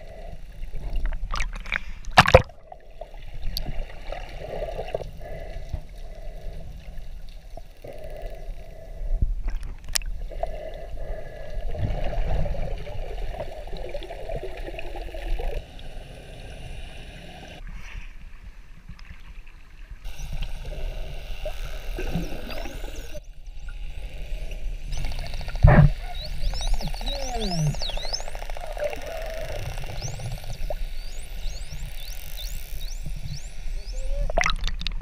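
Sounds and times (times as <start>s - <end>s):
water gurgling underwater: 1.0s - 5.0s, 33.9s - 35.0s.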